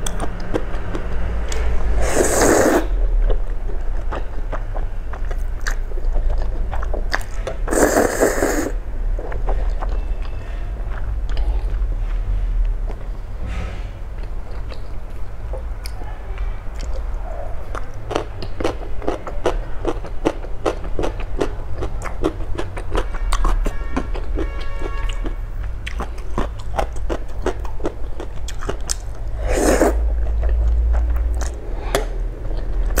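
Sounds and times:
crunchy chewing: 0.0 - 11.9, 16.7 - 33.0
slurp of noodles: 1.9 - 2.9, 7.7 - 8.8, 29.4 - 30.0.

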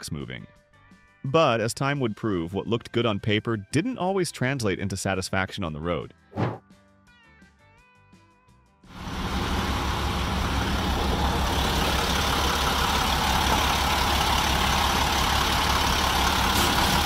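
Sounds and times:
diesel truck engine idling: 9.0 - 17.0.

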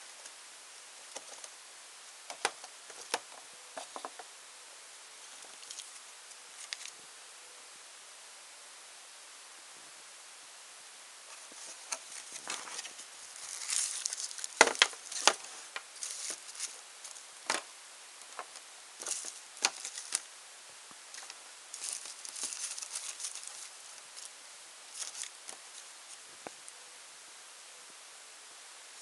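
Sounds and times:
plastic bag crinkling: 11.4 - 20.3, 21.1 - 26.2.

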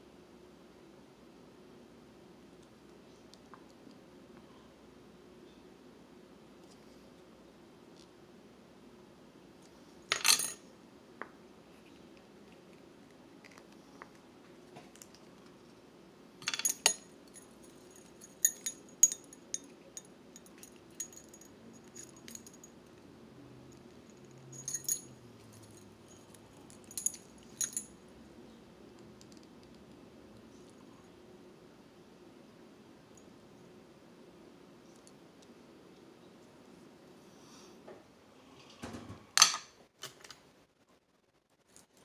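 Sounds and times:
metal lure blades clinking: 16.4 - 22.7, 24.6 - 27.9.

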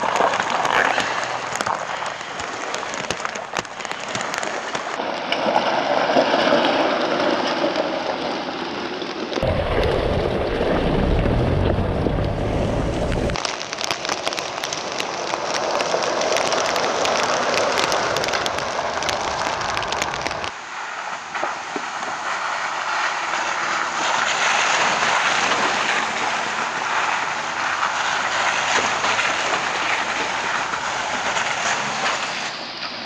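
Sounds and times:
tyres crunching over gravel: 0.0 - 5.0, 9.4 - 20.5.

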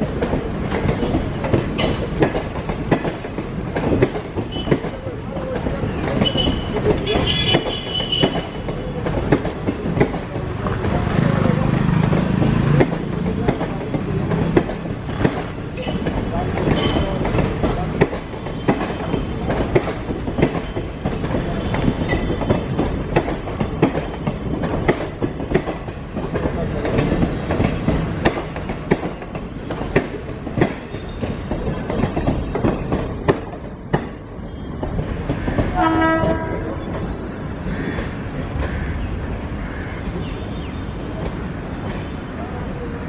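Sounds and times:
train wheels clattering over rails: 0.0 - 43.0
train horn: 35.8 - 37.0.

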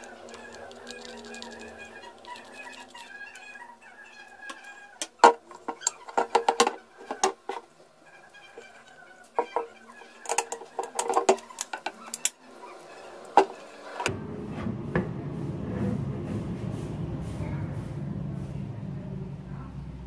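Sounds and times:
low steady rumble: 14.1 - 20.0.

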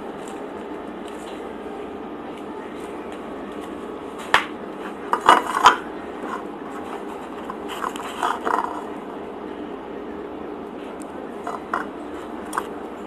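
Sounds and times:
low room hum: 0.0 - 13.0
tableware clicking and knocking: 5.1 - 6.4.

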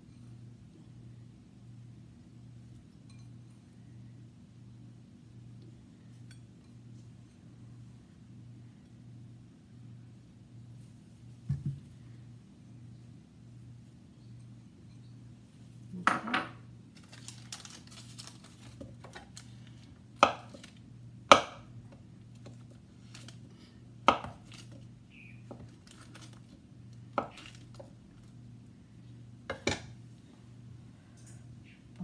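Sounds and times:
low steady hum: 0.0 - 32.0
knife knocking on cutting board: 11.5 - 11.8.

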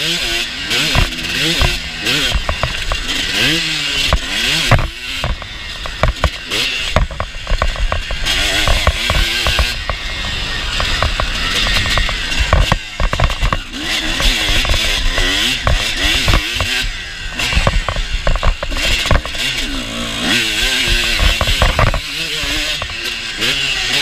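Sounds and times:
motocross bike engine revving: 0.0 - 24.0
sharp knocks: 0.8 - 10.0, 10.8 - 16.8, 17.4 - 19.5, 20.6 - 23.0.

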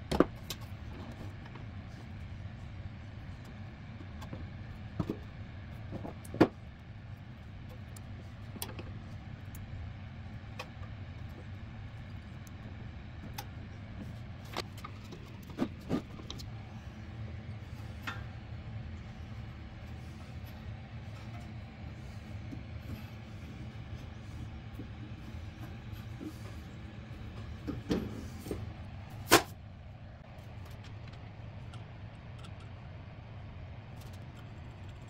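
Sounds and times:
steady low hum: 0.0 - 35.0
light clicks and knocks of parts: 3.2 - 9.7, 10.3 - 16.7, 30.3 - 33.0.

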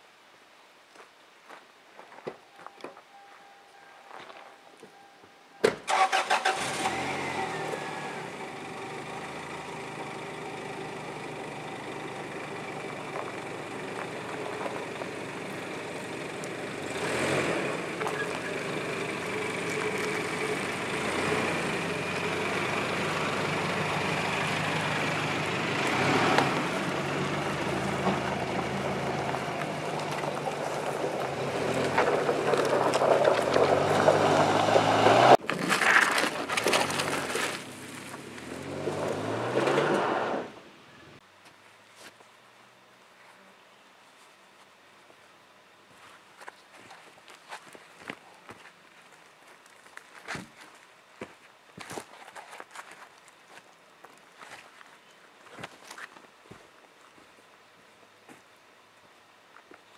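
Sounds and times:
truck engine starting and idling: 5.6 - 40.6.

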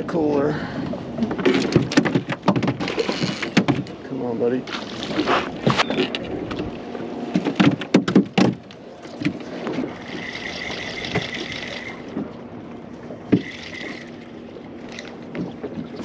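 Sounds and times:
knocks and thumps on boat: 1.2 - 10.1, 11.0 - 13.8, 15.2 - 16.0
spinning reel whirring: 10.0 - 12.1.

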